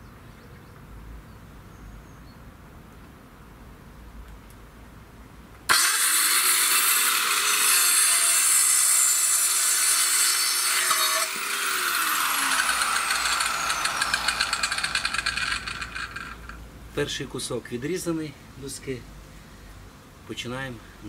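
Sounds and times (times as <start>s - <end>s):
circular saw cutting wood: 5.7s - 16.6s.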